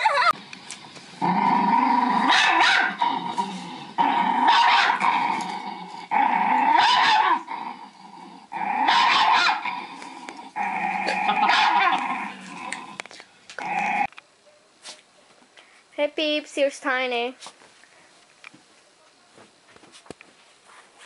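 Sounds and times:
dog growling howl: 1.2 - 13.0.

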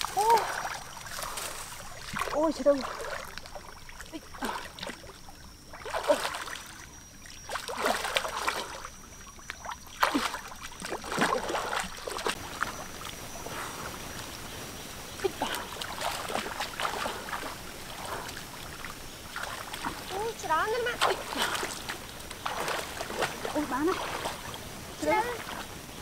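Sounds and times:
water drips and plops: 0.0 - 14.6, 15.2 - 26.0
water sloshing and splashing: 0.0 - 26.0.

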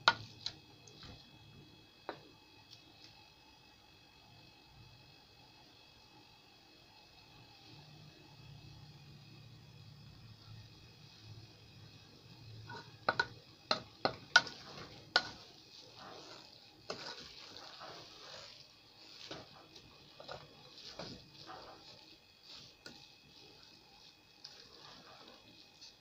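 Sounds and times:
spoon knocking against pot: 12.7 - 14.6
greens scraping and rustling: 14.6 - 26.0.

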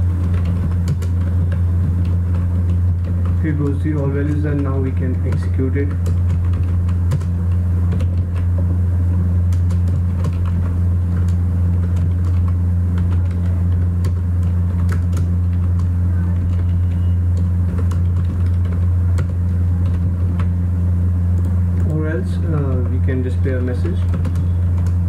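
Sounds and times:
loud low hum: 0.0 - 25.0
keyboard keystroke clicks: 9.5 - 20.5.

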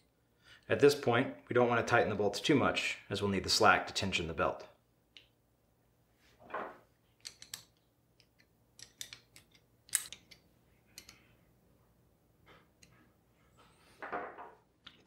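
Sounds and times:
wrench clinking on metal bolts: 7.2 - 11.3.

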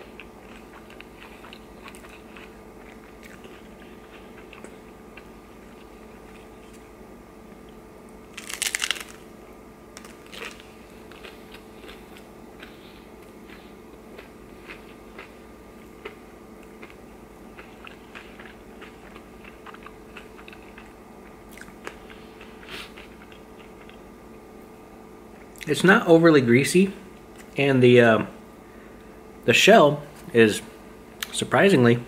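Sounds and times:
close-up chewing: 0.0 - 6.8, 10.0 - 24.0
crunchy bite into taco: 0.0 - 7.0, 7.6 - 24.1
faint steady hum: 0.0 - 32.0.

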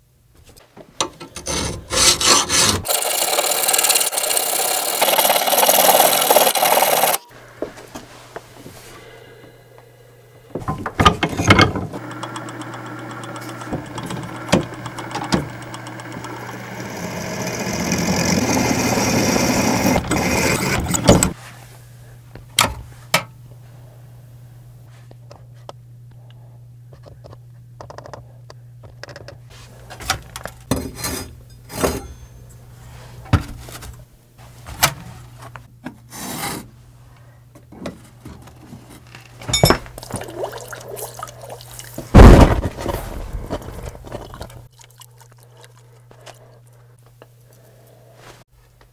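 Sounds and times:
hand file rasping on steel blade: 1.4 - 2.9
steady low hum: 7.3 - 34.6
scattered clicks and knocks: 10.7 - 16.8, 27.0 - 28.2.

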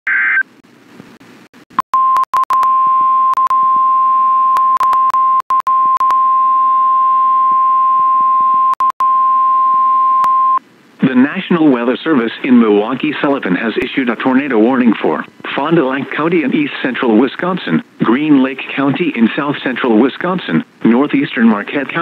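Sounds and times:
steady weather alert tone: 10.0 - 22.0.

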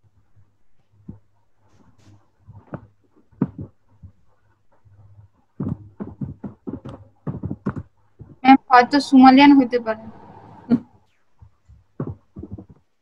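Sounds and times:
scattered knocks: 5.6 - 8.4
low hum: 8.5 - 11.0.

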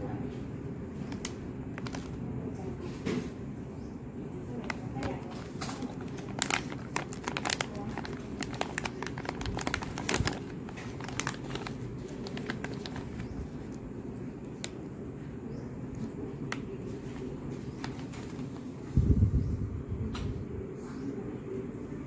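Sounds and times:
low background hum: 0.0 - 22.0
plastic wrapper crinkling: 1.0 - 2.3, 4.5 - 14.8, 16.5 - 18.8.

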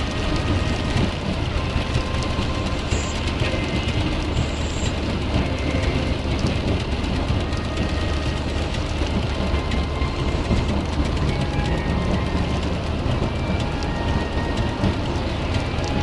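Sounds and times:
tyre spray and rain hiss: 0.0 - 6.6
in-car road rumble: 0.0 - 16.0.

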